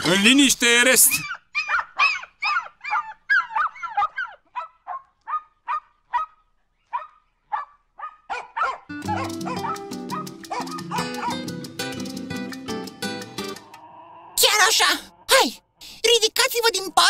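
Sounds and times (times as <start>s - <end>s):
music: 8.9s - 13.7s.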